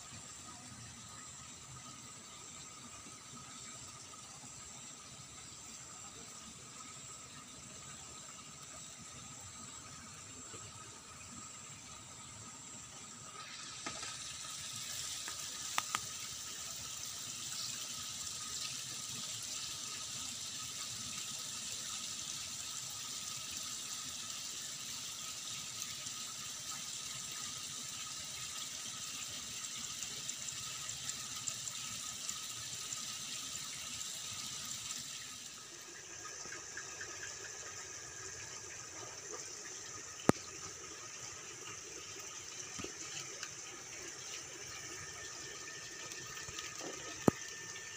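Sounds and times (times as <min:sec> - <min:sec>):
running water rushing: 0:12.7 - 0:16.8, 0:34.8 - 0:47.9.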